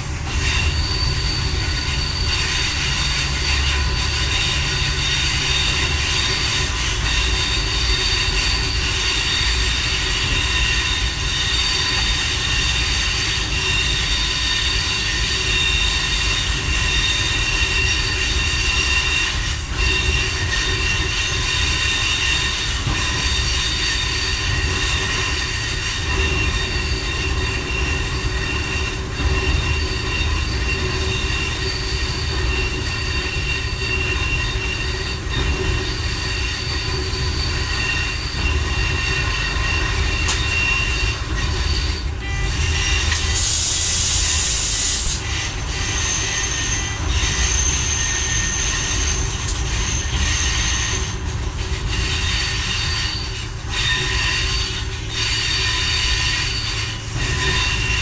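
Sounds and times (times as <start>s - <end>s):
railcar engine and wheels rumbling: 0.0s - 58.0s
sharp hiss: 43.2s - 45.2s.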